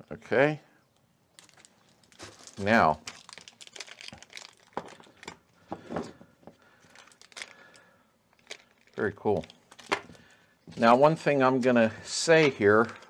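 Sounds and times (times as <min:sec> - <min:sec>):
packaging crinkling: 0:01.3 - 0:10.4
packaging tearing: 0:01.4 - 0:05.4, 0:06.9 - 0:07.8, 0:08.4 - 0:10.0.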